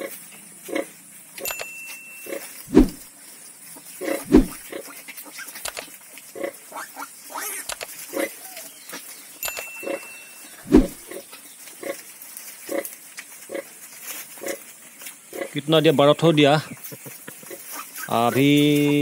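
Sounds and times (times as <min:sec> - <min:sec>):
pigs grunting: 0:00.0 - 0:01.0, 0:03.8 - 0:05.6, 0:06.3 - 0:08.7, 0:09.8 - 0:15.8, 0:16.6 - 0:19.0.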